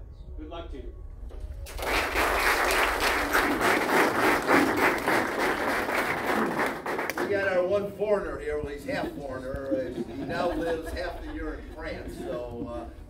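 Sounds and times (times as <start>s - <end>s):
crowd applauding: 1.6s - 7.5s.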